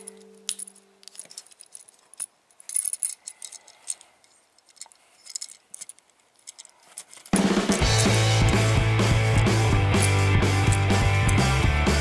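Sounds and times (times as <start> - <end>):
plastic toy parts clicking: 0.0 - 7.8.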